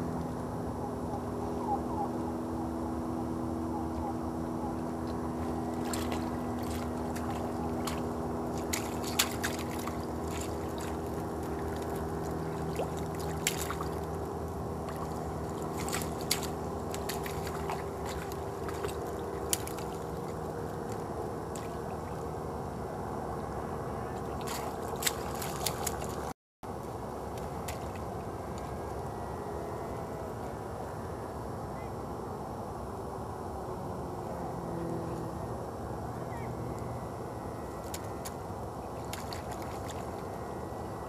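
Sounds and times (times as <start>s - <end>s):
low background hum: 0.0s - 41.0s
water sloshing: 5.0s - 22.3s, 24.2s - 29.0s, 37.8s - 40.4s.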